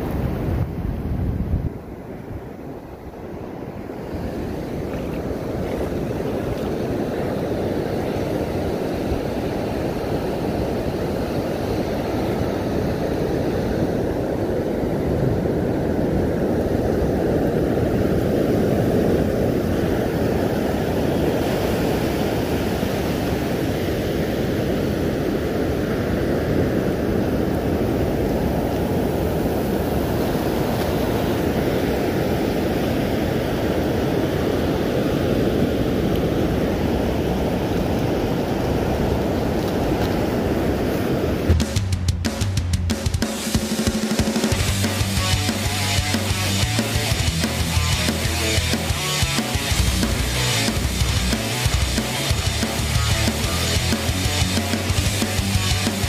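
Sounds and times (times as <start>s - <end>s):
surf washing on sand beach: 0.0s - 41.6s, 43.0s - 56.0s
wind noise on microphone: 0.0s - 42.8s.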